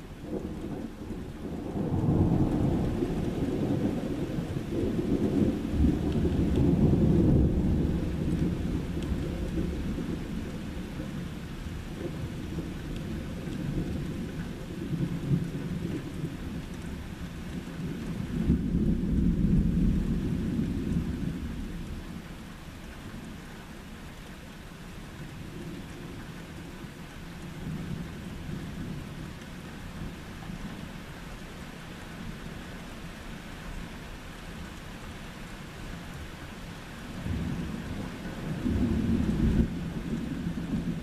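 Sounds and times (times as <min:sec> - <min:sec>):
steady rain: 0:00.0 - 0:41.0
thunder rumbling: 0:00.2 - 0:11.3, 0:37.2 - 0:41.0.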